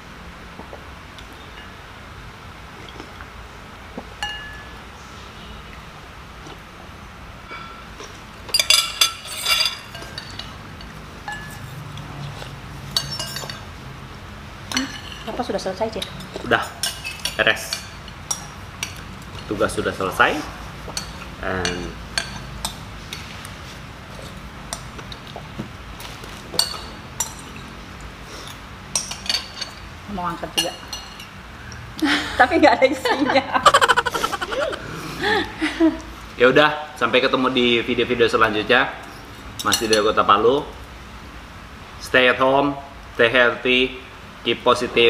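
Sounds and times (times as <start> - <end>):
metal spoons clinking ceramic bowls: 4.2 - 4.8, 7.5 - 12.3, 12.9 - 13.7, 14.7 - 15.3, 16.0 - 19.8, 20.9 - 23.2, 26.6 - 27.7, 28.4 - 29.9, 30.6 - 31.4, 39.6 - 40.1.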